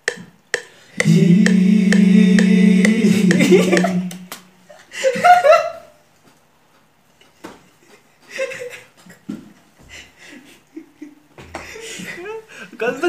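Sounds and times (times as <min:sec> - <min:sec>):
muffled men snickering: 0:01.0 - 0:05.8.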